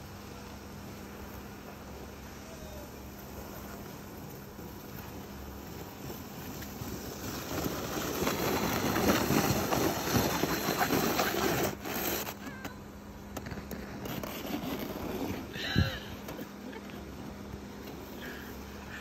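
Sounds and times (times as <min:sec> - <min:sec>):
plastic sled scraping over snow: 0:03.1 - 0:19.0.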